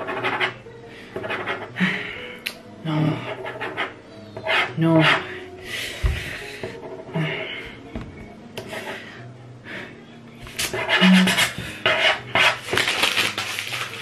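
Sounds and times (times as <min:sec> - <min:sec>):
paper rustling and crackling: 0:12.4 - 0:14.0.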